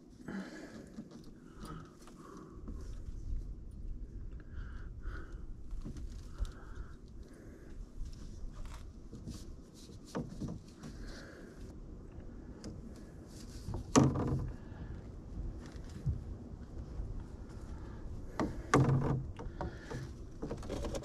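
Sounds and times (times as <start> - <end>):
plastic pipe knocks and scrapes: 9.1 - 11.0, 13.6 - 14.9, 18.3 - 21.0.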